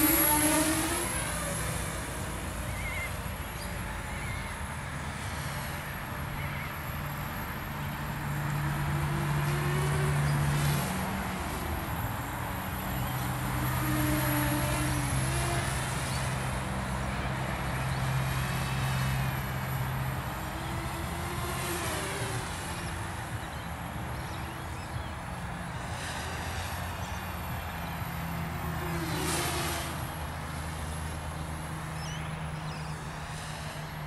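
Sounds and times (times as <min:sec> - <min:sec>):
model airplane motor: 0:00.0 - 0:34.0.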